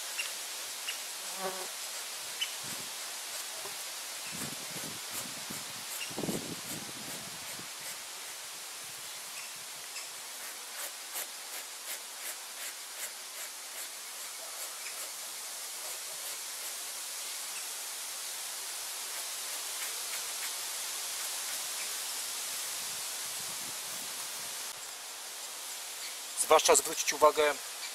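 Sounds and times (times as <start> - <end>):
steady hiss: 0.0 - 27.9
knife scraping hide: 10.3 - 15.1.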